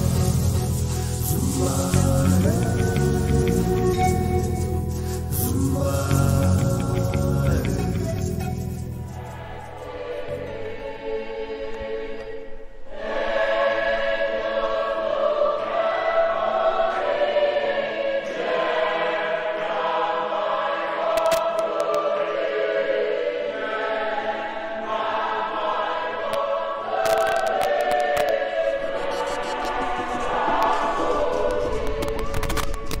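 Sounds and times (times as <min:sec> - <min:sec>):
choir singing in harmony: 0:00.0 - 0:33.0
sharp clicks: 0:21.2 - 0:22.0, 0:27.0 - 0:28.4.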